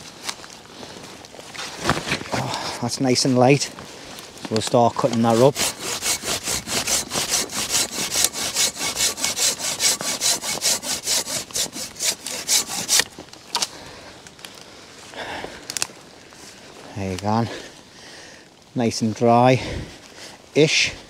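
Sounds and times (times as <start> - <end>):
hand saw cutting branch: 5.0 - 13.2.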